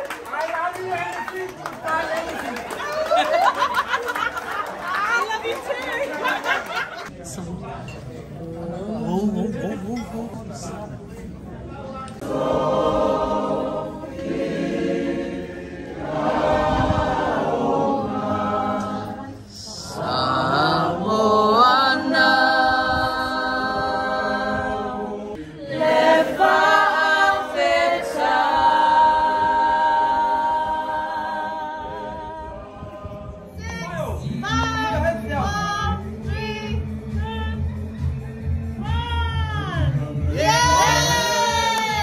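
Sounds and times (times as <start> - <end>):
group of people singing: 12.2 - 36.2.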